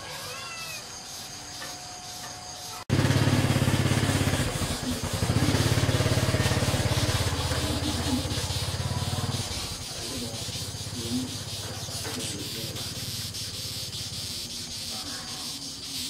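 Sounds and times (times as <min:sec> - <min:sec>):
small engine idling: 0:02.7 - 0:14.2.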